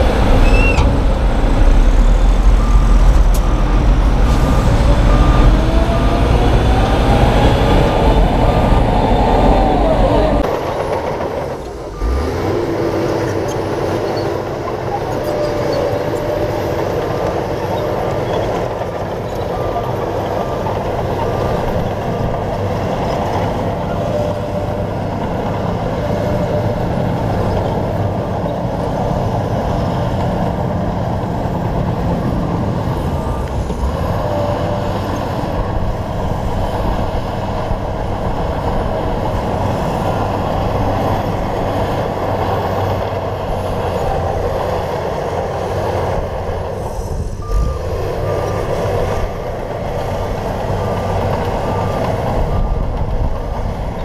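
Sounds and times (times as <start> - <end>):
bulldozer diesel engine running: 0.0 - 54.0
reversing alarm beeping: 1.7 - 10.4, 47.4 - 49.2.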